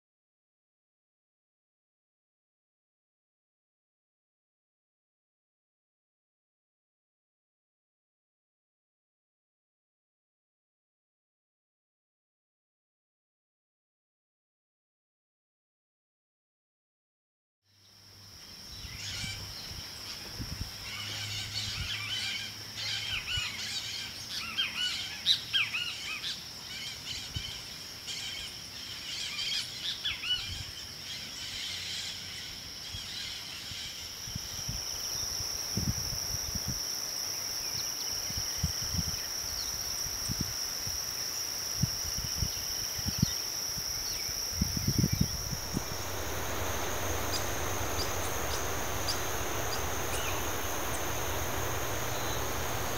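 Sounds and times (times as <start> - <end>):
high insect drone: 17.8 - 52.9
rushing hiss: 45.1 - 52.9.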